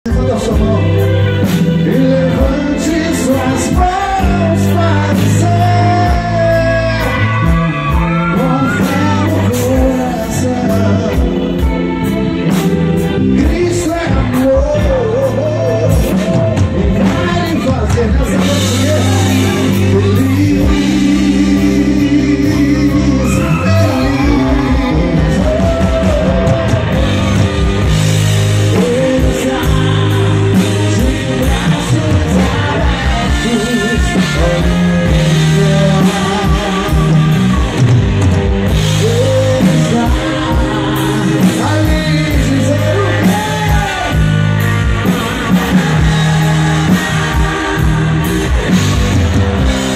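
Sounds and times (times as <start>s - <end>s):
drums: 0.0s - 49.9s
electric guitar: 0.0s - 49.9s
keyboard: 0.0s - 49.9s
man singing: 0.0s - 49.9s.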